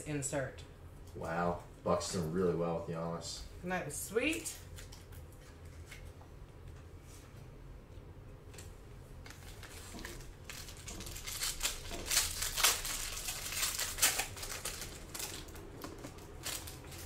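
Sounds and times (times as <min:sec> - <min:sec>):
foil wrapper crinkling and tearing: 0:09.3 - 0:17.0.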